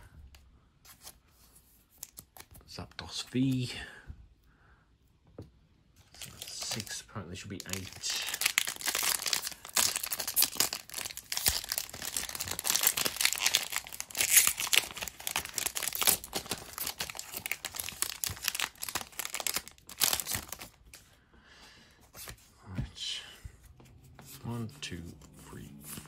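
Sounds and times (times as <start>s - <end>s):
foil wrapper crinkling and tearing: 6.0s - 21.0s.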